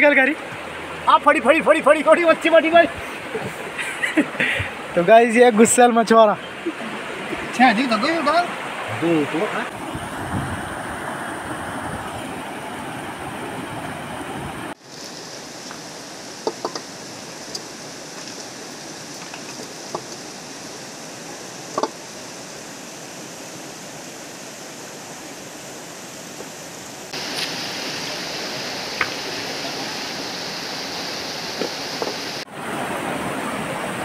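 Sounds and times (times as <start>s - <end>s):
river rapids rushing over boulders: 0.0s - 34.0s.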